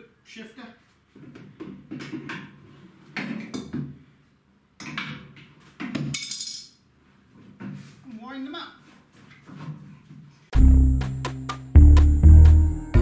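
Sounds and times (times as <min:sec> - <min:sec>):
wrench clattering on concrete floor: 0:05.9 - 0:06.8
wrench clinking on metal: 0:06.1 - 0:06.8.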